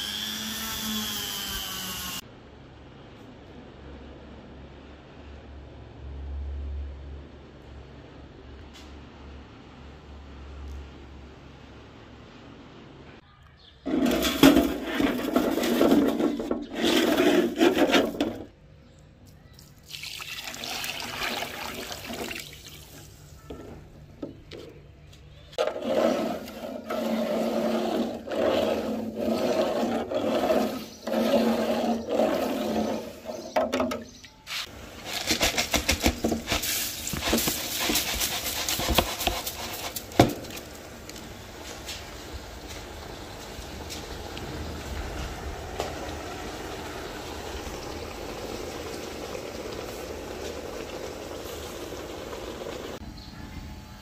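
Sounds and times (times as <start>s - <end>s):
water gushing into a tray: 19.8s - 23.0s
crackling splashes: 43.7s - 53.0s.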